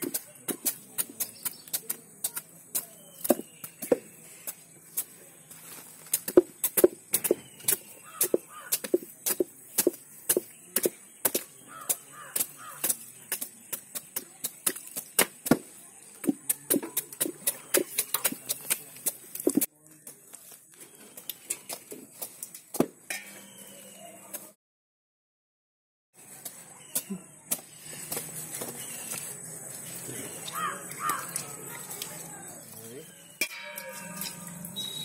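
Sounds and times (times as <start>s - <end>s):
hatchet chopping fruit rind: 0.0s - 5.2s, 6.2s - 19.7s.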